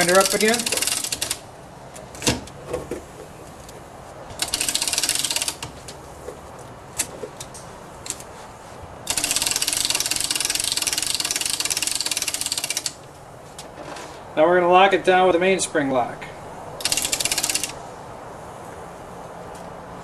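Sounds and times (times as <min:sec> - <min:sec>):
ratchet clicking: 0:00.0 - 0:01.4, 0:04.4 - 0:05.7, 0:09.1 - 0:13.0, 0:16.8 - 0:17.8.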